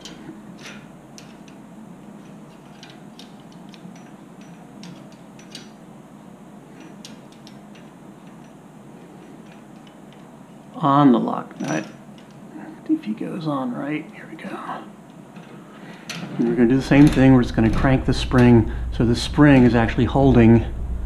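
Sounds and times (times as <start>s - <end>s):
metal wrench clicking and tapping: 2.5s - 5.8s.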